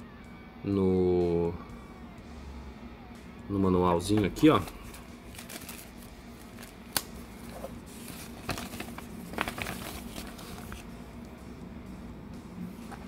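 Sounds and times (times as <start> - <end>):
paper rustling and crinkling: 4.6 - 10.9.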